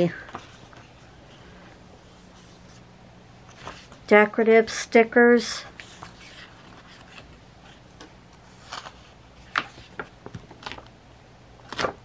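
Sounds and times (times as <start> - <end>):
paper sheets rustling: 8.5 - 10.8, 11.6 - 12.0.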